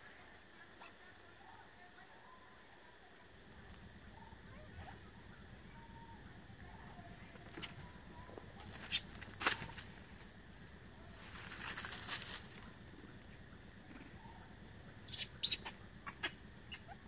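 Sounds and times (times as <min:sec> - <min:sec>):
rustling in dry leaves: 0:08.5 - 0:10.4, 0:11.0 - 0:12.9.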